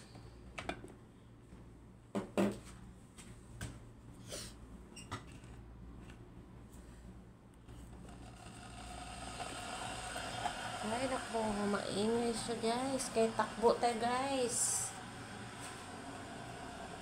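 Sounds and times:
steady low hum: 0:05.7 - 0:17.0.

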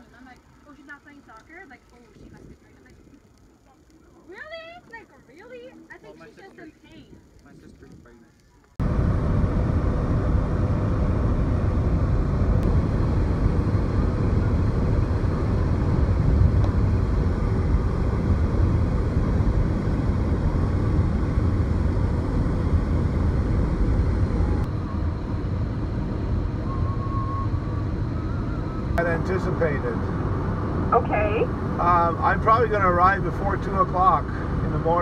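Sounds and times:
road and wind noise in car: 0:08.0 - 0:35.0.

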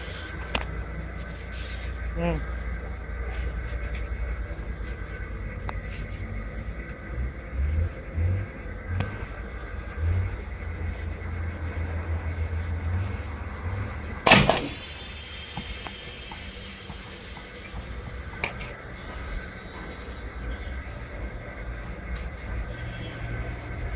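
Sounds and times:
escaping air hiss: 0:00.0 - 0:00.4, 0:14.3 - 0:18.4
air cannon blast: 0:14.3 - 0:18.3.

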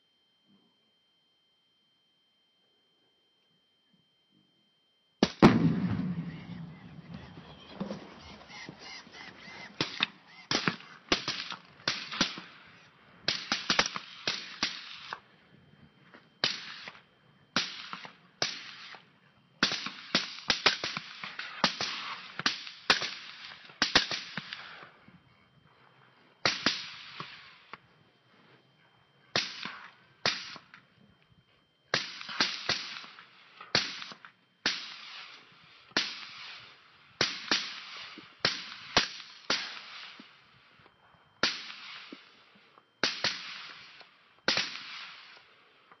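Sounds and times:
rifle shots echoing: 0:05.2 - 0:07.2, 0:09.2 - 0:12.7, 0:13.3 - 0:15.2, 0:19.6 - 0:24.8, 0:26.4 - 0:27.6, 0:29.3 - 0:30.7, 0:31.9 - 0:35.4, 0:43.0 - 0:45.4.

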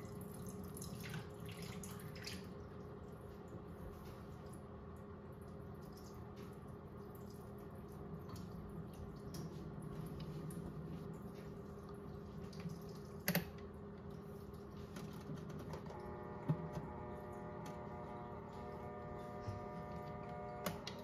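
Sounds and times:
toy washing machine motor humming: 0:15.0 - 0:21.0
higher hum: 0:15.9 - 0:21.0.

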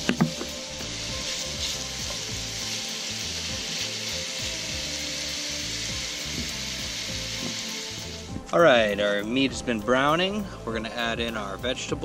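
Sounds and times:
steak sizzling in butter: 0:00.0 - 0:09.2.

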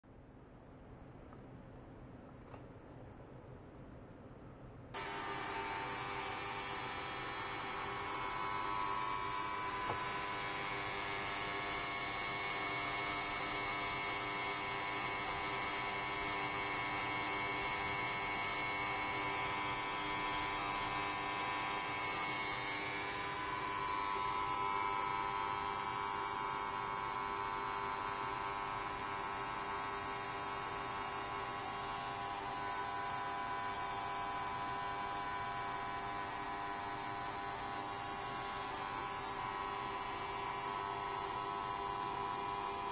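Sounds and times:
ultrasonic cleaner buzzing: 0:05.0 - 0:42.9.

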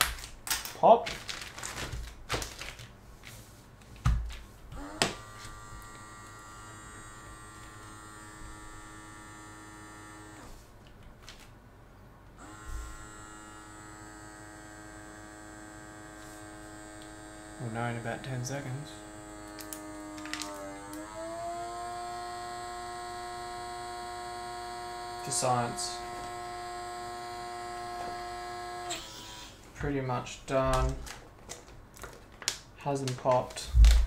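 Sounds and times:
plastic bag rustling: 0:00.0 - 0:04.6, 0:30.6 - 0:34.0
electric vacuum pump whining: 0:04.7 - 0:10.7, 0:12.4 - 0:30.0.

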